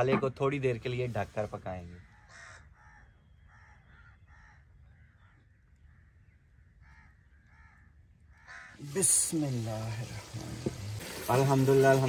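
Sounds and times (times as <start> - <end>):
faint bird calls: 2.0 - 8.9.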